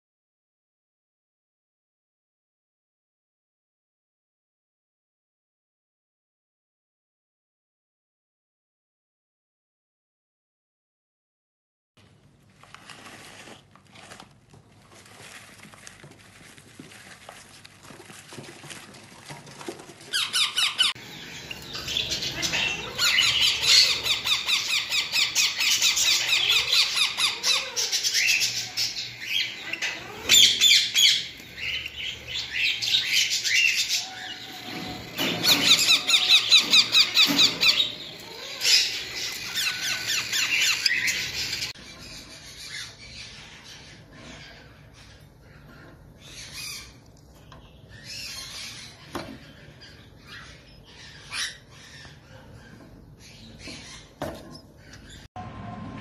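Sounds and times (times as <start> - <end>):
parrots squawking and chattering: 19.6 - 55.3.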